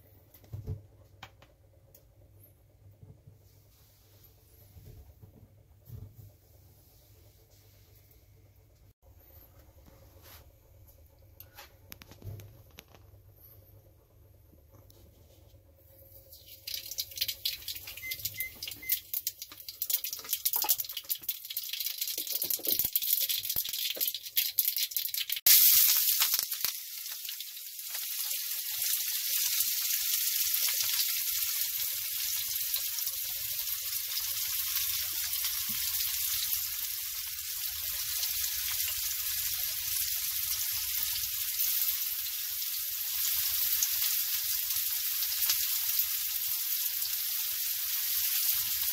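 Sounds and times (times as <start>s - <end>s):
mustard seeds popping in oil: 16.3s - 28.2s
onions sizzling in oil: 25.0s - 48.9s.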